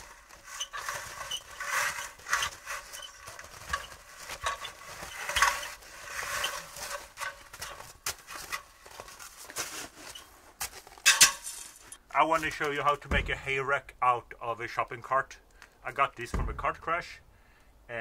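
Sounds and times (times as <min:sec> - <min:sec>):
metal ladder knocking and rattling: 0:00.0 - 0:09.2, 0:10.8 - 0:11.9
footsteps crunching in snow: 0:00.0 - 0:12.8.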